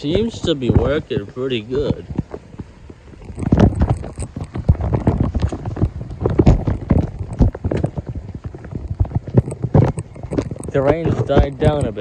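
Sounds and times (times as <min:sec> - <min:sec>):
footsteps on wet concrete: 0:00.0 - 0:12.0
raindrops tapping on microphone: 0:00.0 - 0:12.0.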